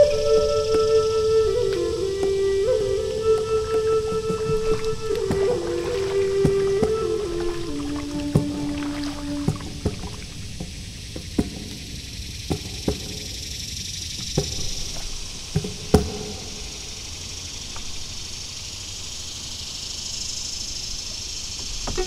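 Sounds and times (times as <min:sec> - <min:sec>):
steady high hiss: 0:00.0 - 0:22.0
paddle knocking on plastic kayak: 0:03.3 - 0:11.9, 0:12.5 - 0:13.3, 0:14.3 - 0:16.6, 0:21.6 - 0:22.0.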